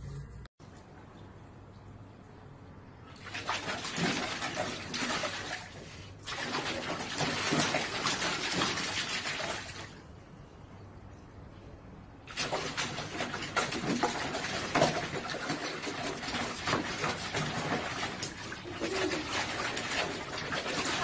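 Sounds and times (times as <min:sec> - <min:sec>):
puppy splashing in water: 0:03.1 - 0:10.1, 0:12.2 - 0:21.0.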